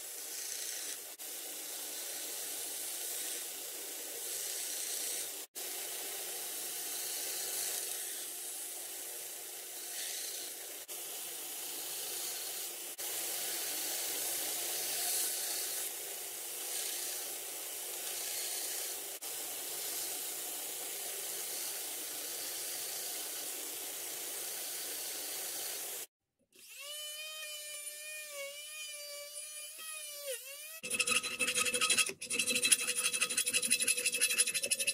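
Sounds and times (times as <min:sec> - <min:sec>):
rotary tool whining: 0:00.0 - 0:01.1, 0:09.8 - 0:10.6, 0:16.6 - 0:17.4, 0:18.0 - 0:20.4, 0:24.3 - 0:34.9
belt sander grinding steel: 0:24.2 - 0:34.9.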